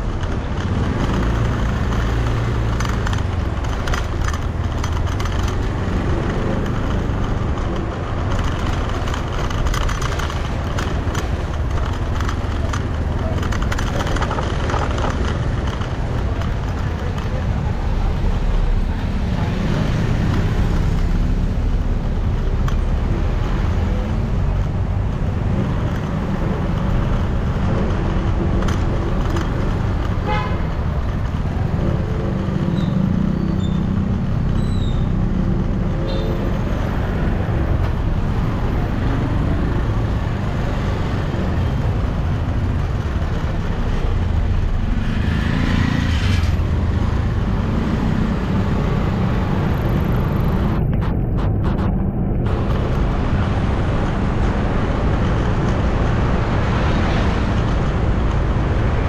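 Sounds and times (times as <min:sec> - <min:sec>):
traffic engines rumbling: 0:00.0 - 0:59.0
vehicle horn tooting: 0:30.2 - 0:30.7.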